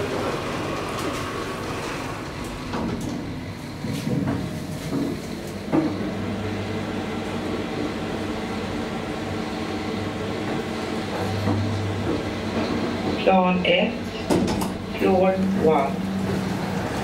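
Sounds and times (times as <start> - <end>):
elevator drive humming: 0.0 - 17.0
elevator clunk and knocks: 10.5 - 13.3, 14.2 - 16.6.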